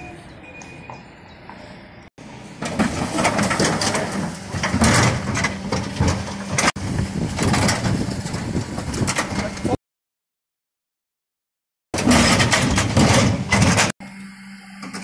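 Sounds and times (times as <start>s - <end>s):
truck engine humming: 0.0s - 9.1s
wheelie bins clattering: 2.2s - 9.8s, 12.0s - 14.0s.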